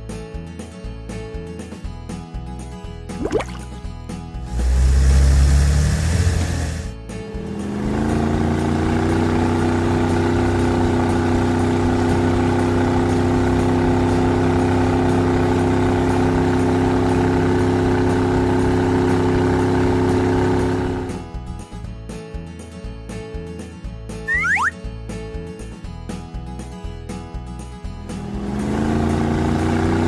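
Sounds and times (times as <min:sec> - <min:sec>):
cartoon engine hum: 0:24.3 - 0:24.8.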